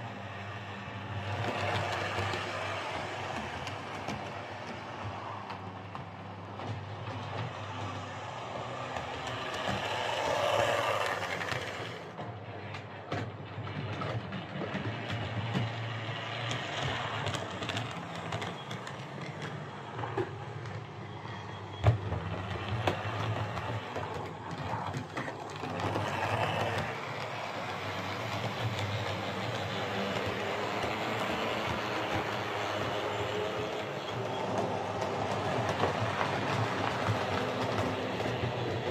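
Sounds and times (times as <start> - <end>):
model train motor whirring: 7.7 - 12.1, 25.0 - 38.9.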